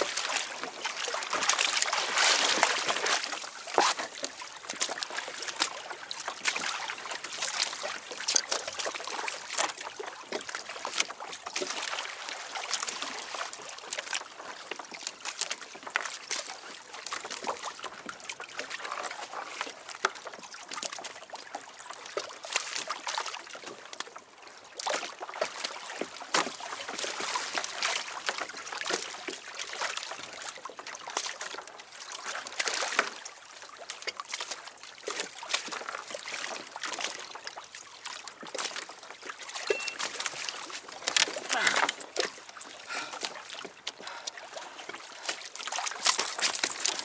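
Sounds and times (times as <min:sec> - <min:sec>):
water sloshing against kayak hull: 0:00.0 - 0:47.0.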